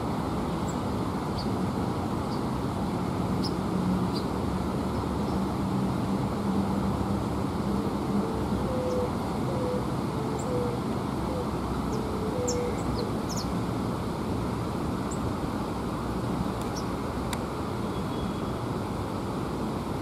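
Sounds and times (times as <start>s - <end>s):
small birds chirping: 0.6s - 1.6s, 3.4s - 4.3s, 11.9s - 13.6s, 16.6s - 17.0s.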